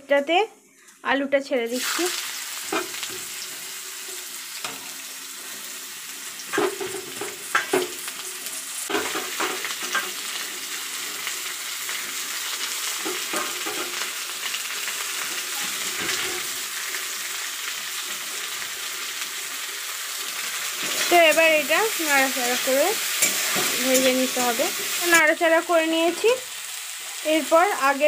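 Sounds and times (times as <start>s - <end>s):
potatoes sizzling in hot oil: 1.4s - 28.0s
knocks and clatters in pan: 6.5s - 8.0s, 8.9s - 10.2s, 13.0s - 14.0s.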